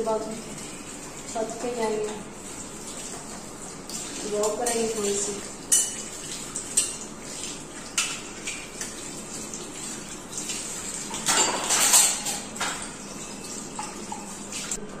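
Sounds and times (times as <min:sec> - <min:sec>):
tap water running into sink: 0:00.0 - 0:14.8
glasses and crockery clinking: 0:05.7 - 0:06.1, 0:11.1 - 0:14.3.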